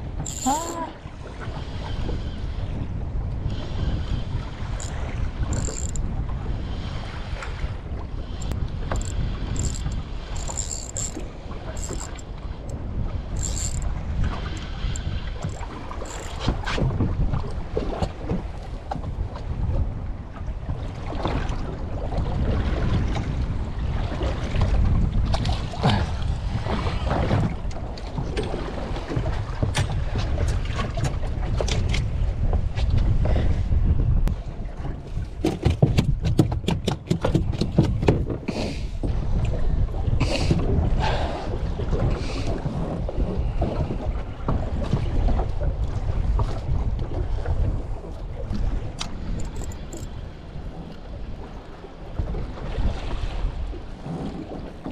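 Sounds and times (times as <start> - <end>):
water lapping against boat hull: 0.0 - 54.9
wind buffeting microphone: 0.0 - 54.9
splashes and knocks: 35.3 - 38.5.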